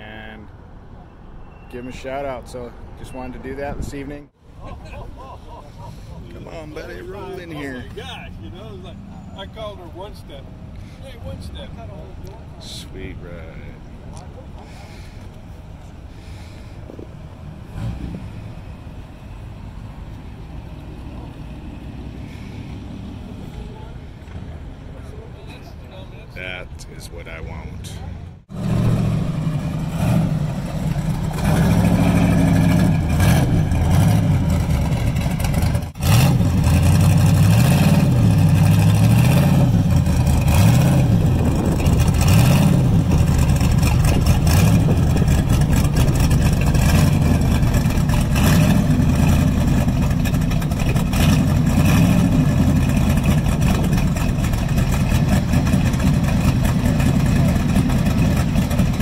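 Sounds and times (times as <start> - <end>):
car engine revving by: 17.5 - 18.8, 28.5 - 59.0.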